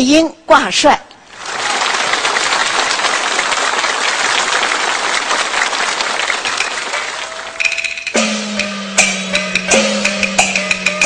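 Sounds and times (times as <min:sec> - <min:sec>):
audience applauding: 0:01.3 - 0:08.2
sharp percussion clicks: 0:06.6 - 0:11.0
held instrument tone: 0:06.9 - 0:11.0.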